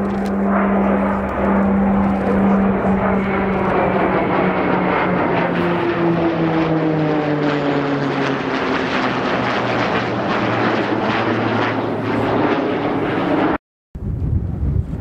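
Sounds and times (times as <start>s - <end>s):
aircraft flying past: 0.0s - 13.6s.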